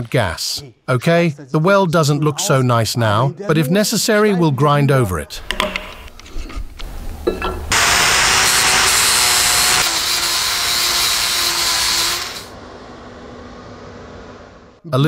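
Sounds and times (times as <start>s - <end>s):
angle grinder grinding steel: 5.9s - 12.6s.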